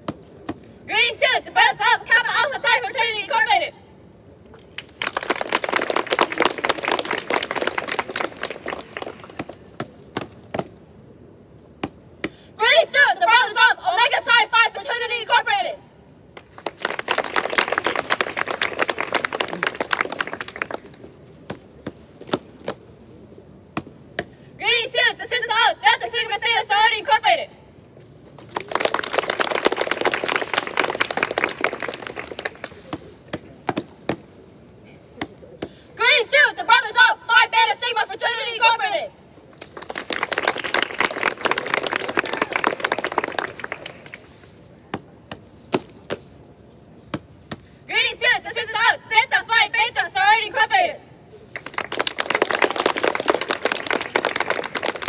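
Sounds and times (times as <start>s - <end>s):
applause: 4.6s - 9.6s, 16.5s - 21.1s, 28.3s - 32.9s, 39.5s - 44.5s, 51.5s - 55.0s
crowd clapping and cheering: 4.7s - 9.7s, 16.4s - 21.1s, 28.3s - 32.9s, 39.6s - 44.4s, 51.5s - 55.0s.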